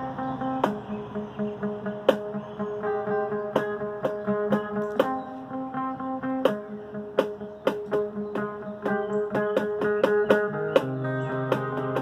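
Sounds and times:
plucked guitar melody: 0.0 - 12.0
sharp percussive knock: 3.6 - 5.2.

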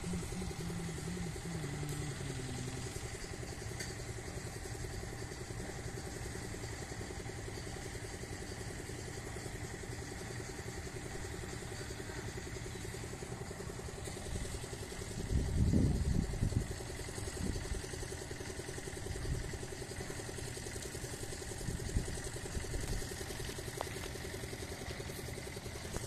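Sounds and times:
machinery humming with pulse: 0.0 - 26.0.

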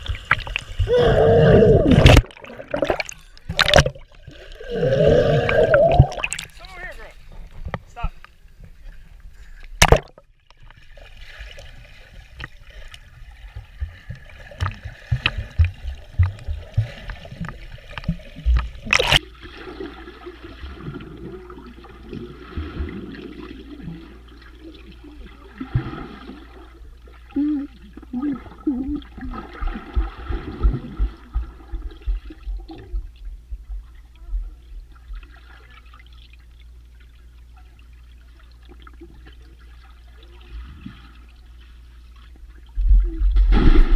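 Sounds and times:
muffled underwater sloshing: 0.0 - 43.9
water splash: 1.8 - 4.5, 5.2 - 6.7, 9.8 - 10.2, 14.5 - 21.0, 43.3 - 43.9
dull underwater thuds: 13.5 - 19.2, 29.6 - 34.5.

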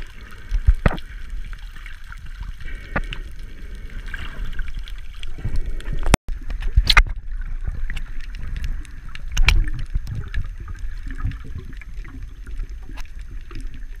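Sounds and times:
muffled underwater water rumble: 0.0 - 14.0
underwater clicks and knocks: 0.5 - 1.1, 5.2 - 13.8.

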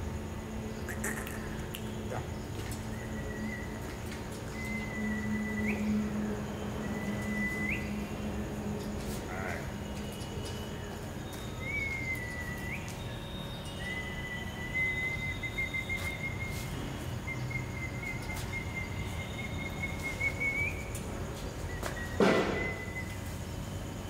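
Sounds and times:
steady background noise: 0.0 - 24.0.

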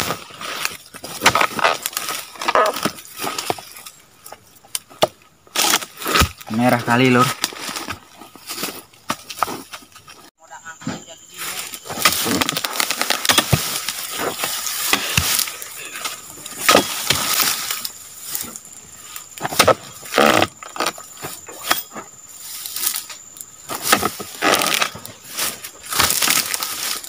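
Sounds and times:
chisel chopping palm fronds: 0.0 - 3.8, 5.0 - 8.0, 11.8 - 18.6, 19.4 - 22.0, 22.8 - 27.0.

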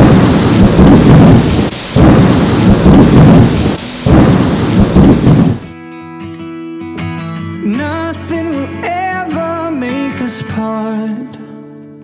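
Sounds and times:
heavy rain: 0.0 - 5.7
thunder rumbling: 0.0 - 5.7.

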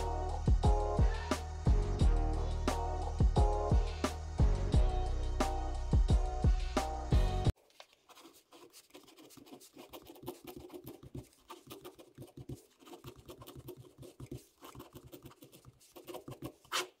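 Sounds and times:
pen scratching on paper: 8.0 - 17.0.

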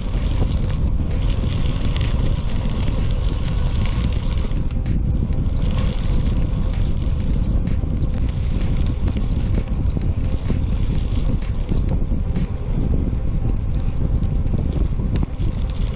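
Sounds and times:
tyres hissing on gravel: 0.0 - 4.6, 5.4 - 7.0
wind rumbling on microphone: 0.0 - 15.9.

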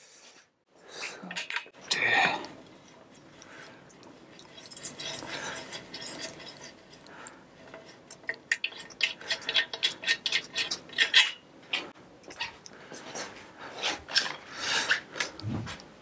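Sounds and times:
rubbing and scraping on bike frame: 2.7 - 15.8.

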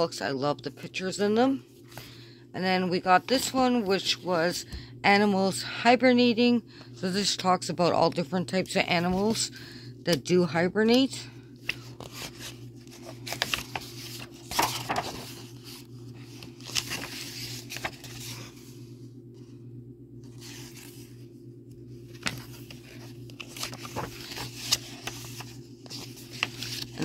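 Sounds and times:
steady low hum: 0.0 - 27.0
book pages rustling: 11.6 - 19.5, 20.2 - 27.0.

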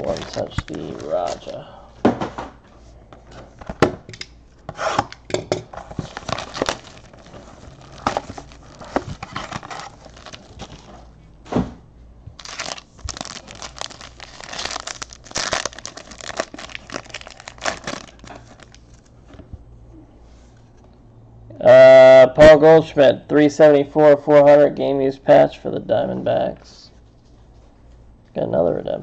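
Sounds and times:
foil pack crinkling and tearing: 0.0 - 1.6, 5.9 - 11.1, 12.4 - 19.0.

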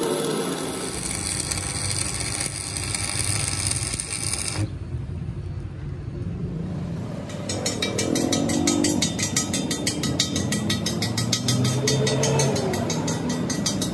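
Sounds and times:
arc welding crackling hiss: 0.0 - 4.8.

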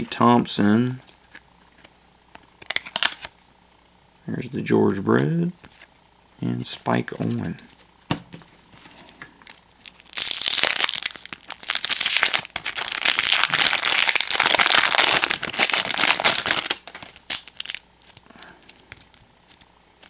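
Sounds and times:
plastic wrapper crinkling and tearing: 2.6 - 3.3, 9.4 - 19.7.

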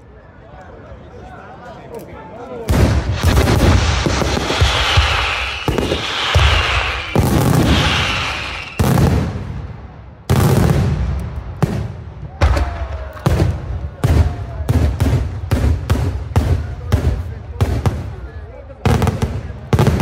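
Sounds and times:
firework shells booming: 2.7 - 18.1
crackling firework hiss: 2.9 - 9.3.

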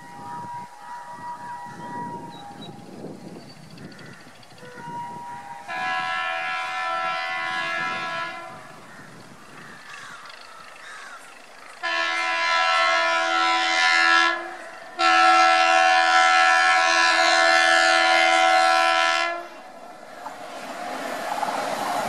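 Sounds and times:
train rumbling: 0.0 - 22.0
train horn blasts: 4.6 - 8.8, 11.8 - 19.8.

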